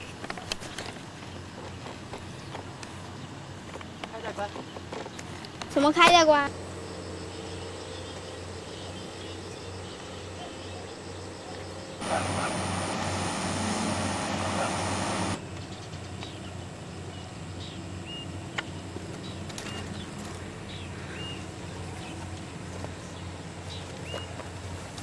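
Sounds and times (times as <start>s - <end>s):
low steady hum: 6.5s - 15.6s
harvester mechanical din: 12.0s - 15.4s.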